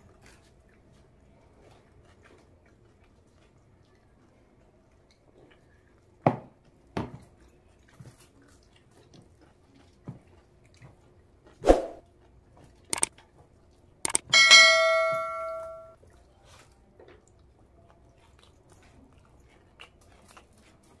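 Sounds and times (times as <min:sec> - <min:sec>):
click: 0:12.9 - 0:13.1, 0:14.1 - 0:14.3
ringing bell chime: 0:14.1 - 0:16.0.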